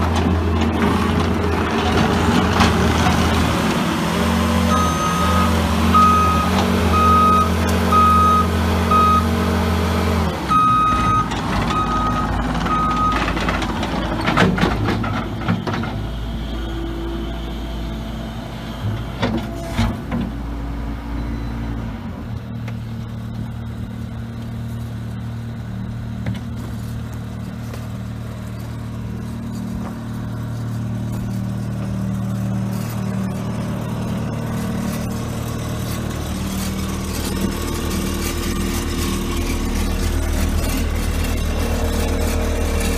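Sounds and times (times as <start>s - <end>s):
diesel engine running: 0.0s - 42.9s
back-up alarm beeping: 4.7s - 9.3s, 10.5s - 13.3s.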